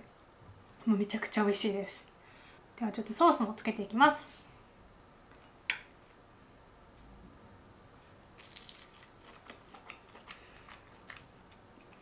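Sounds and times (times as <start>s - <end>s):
crunchy bite: 8.4s - 11.2s
soft chewing: 8.4s - 12.0s.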